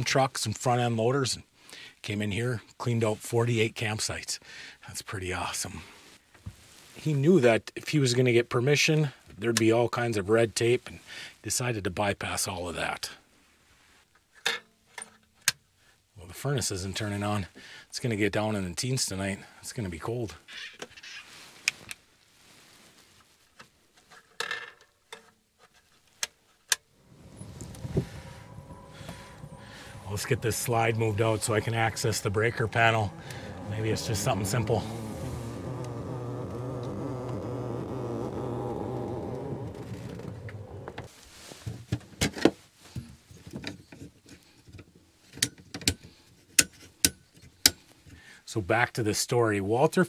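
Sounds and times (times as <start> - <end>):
electric motor humming: 27.0 - 41.1.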